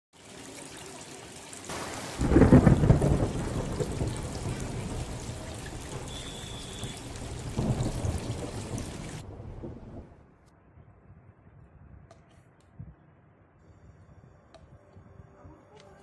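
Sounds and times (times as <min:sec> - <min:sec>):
fountain water pattering into tub: 0:00.1 - 0:09.2.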